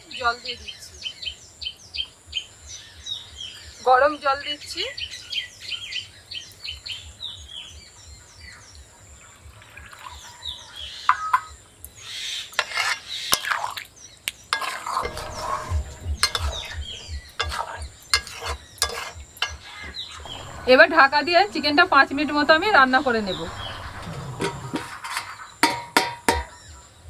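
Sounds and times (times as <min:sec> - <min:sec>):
birds chirping: 0:00.0 - 0:27.0
light sizzle: 0:03.5 - 0:27.0
metal spatula scraping a pan: 0:12.5 - 0:13.8, 0:14.5 - 0:26.5.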